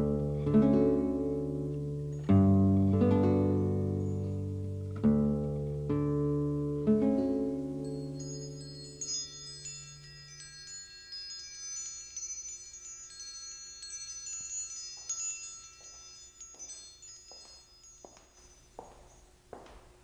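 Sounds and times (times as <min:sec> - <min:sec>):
chimes ringing: 0:07.2 - 0:19.8
soft rustling: 0:08.2 - 0:20.0.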